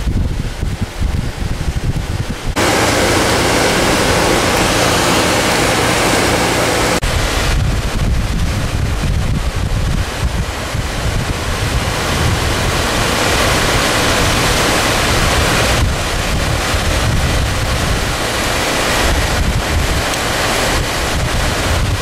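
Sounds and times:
floodwater rushing: 0.0 - 22.0
wind buffeting microphone: 0.0 - 22.0.

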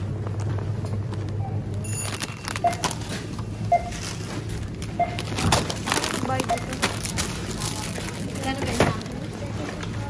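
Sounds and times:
clatter of goods: 1.8 - 10.0
short beeps: 3.7 - 4.0, 5.0 - 5.3.

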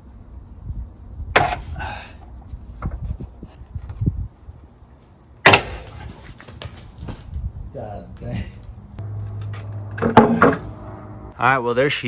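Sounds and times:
metal car parts knocking: 9.8 - 10.8.

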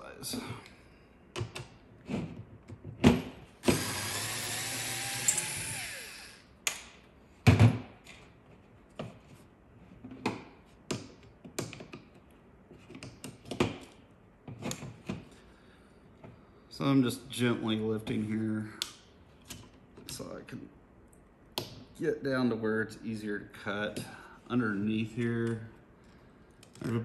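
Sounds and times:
electric screwdriver motor: 3.6 - 6.4.

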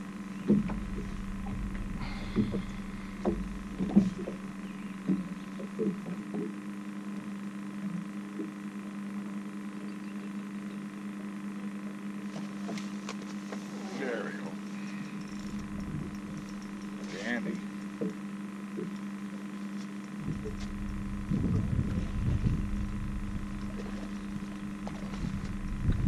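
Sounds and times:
boat motor humming: 0.0 - 26.0
knocks and clunks: 0.3 - 6.5, 20.2 - 26.0.

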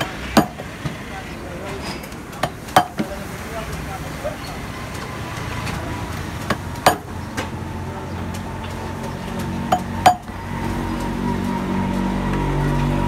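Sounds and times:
hammer knocks: 6.4 - 7.6.

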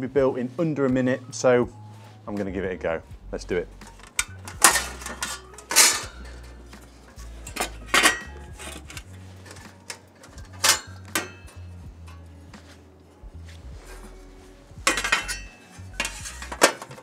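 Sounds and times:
sheet-metal panels clanking: 4.1 - 12.2, 14.9 - 17.0.

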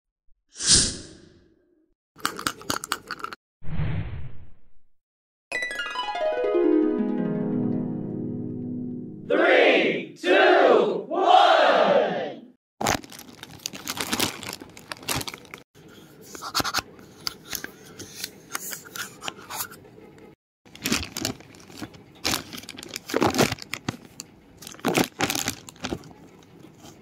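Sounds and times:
foil wrapper opening: 12.8 - 15.6, 20.7 - 26.2
plastic packaging tearing and crinkling: 12.8 - 15.6, 20.7 - 26.2.

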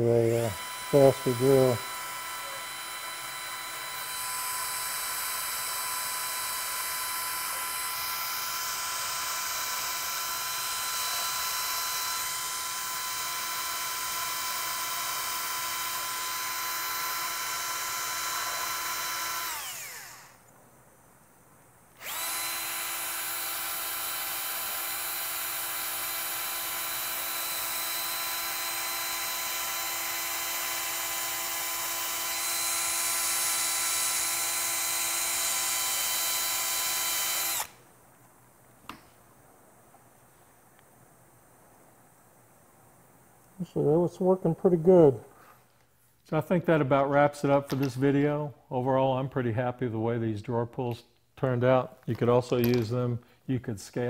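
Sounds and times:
drill whining with bristle disc: 0.0 - 20.4, 21.9 - 37.8.

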